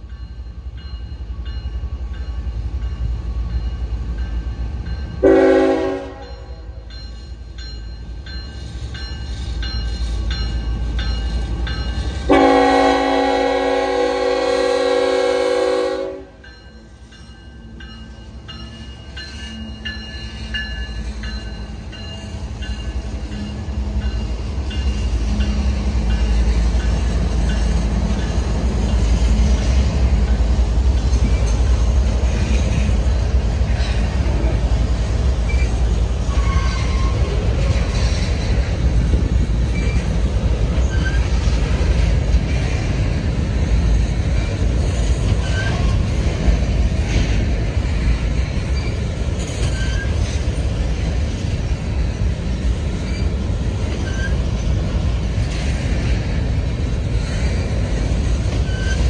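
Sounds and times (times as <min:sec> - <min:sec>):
diesel locomotive engine drone: 0:00.0 - 0:59.0
train wheels rumbling on rail: 0:00.0 - 0:59.0
wheel squeals: 0:35.4 - 0:38.6, 0:39.7 - 0:41.6, 0:48.6 - 0:50.5, 0:52.9 - 0:54.8, 0:58.5 - 0:59.0.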